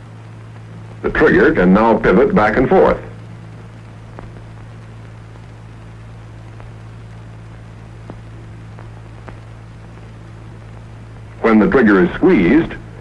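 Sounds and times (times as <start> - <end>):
film soundtrack hum and hiss: 0.0 - 13.0
faint clicks: 3.2 - 11.4.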